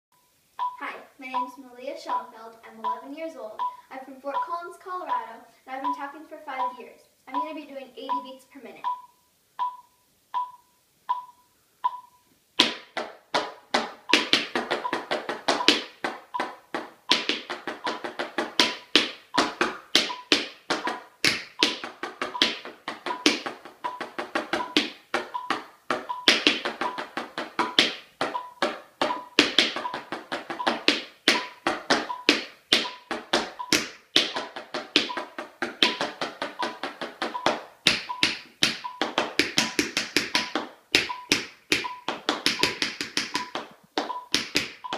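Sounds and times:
electronic metronome beeping: 0.2 - 0.8, 1.4 - 12.9, 14.0 - 44.9
tap shoes on wooden floor: 12.6 - 44.9.

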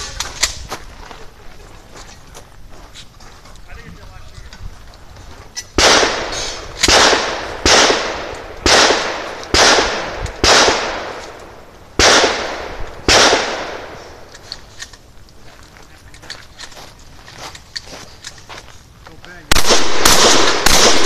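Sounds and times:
shotgun shots: 5.8 - 11.4, 12.0 - 14.2, 19.5 - 21.0.

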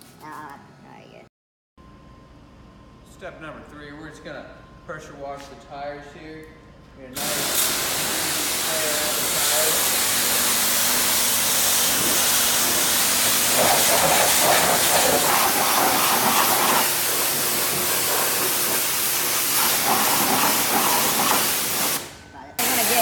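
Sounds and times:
pressure washer jet hissing: 7.2 - 23.0
water splashing on concrete: 9.8 - 22.0.

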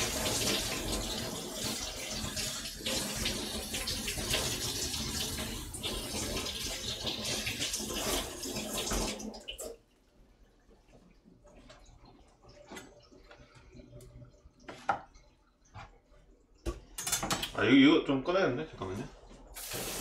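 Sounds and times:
tap water running into sink: 0.0 - 9.8, 19.6 - 20.0.

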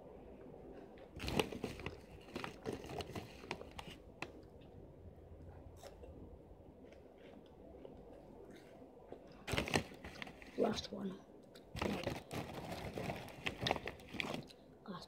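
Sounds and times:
crunching and chewing snack: 0.7 - 4.6, 5.6 - 6.2, 6.8 - 10.6, 11.5 - 14.6.

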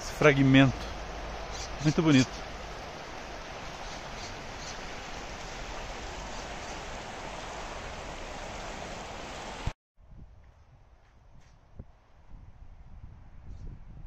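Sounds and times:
running water rushing: 0.0 - 9.8.

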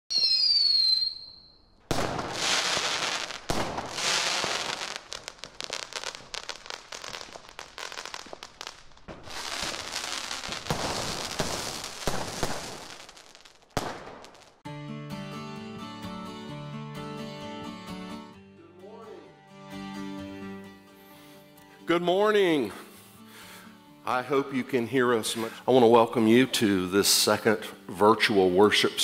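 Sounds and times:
firework rocket whistle: 0.1 - 5.3
firework bangs: 0.1 - 14.6
firework crackling: 0.1 - 14.6.

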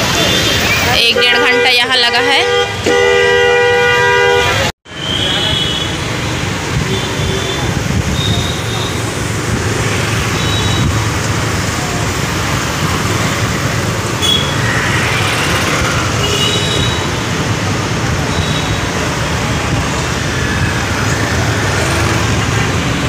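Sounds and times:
road and engine rumble: 0.0 - 23.0
vehicle horns beeping: 0.8 - 6.2, 6.8 - 9.1, 10.2 - 11.0, 14.2 - 14.7, 16.1 - 17.4, 18.2 - 19.0.

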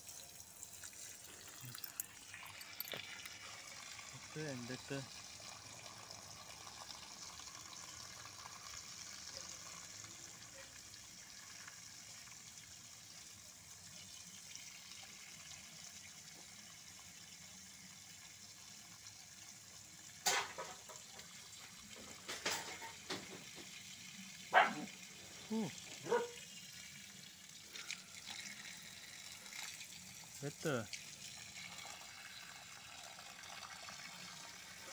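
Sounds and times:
water gushing from a hose: 0.0 - 34.9.

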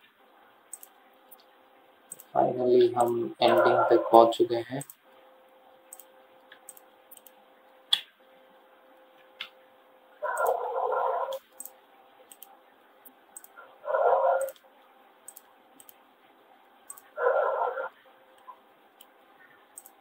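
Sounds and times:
faint steady hum: 0.0 - 20.0
computer mouse clicking: 0.7 - 1.5, 2.1 - 2.4, 3.0 - 3.7, 4.8 - 5.0, 5.9 - 8.1, 10.2 - 10.7, 11.3 - 13.6, 14.3 - 16.0, 16.8 - 17.3, 18.4 - 20.0.

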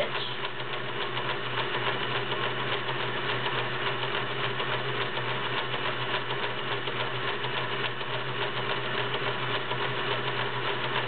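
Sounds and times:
sewing machine motor hum: 0.0 - 11.0.

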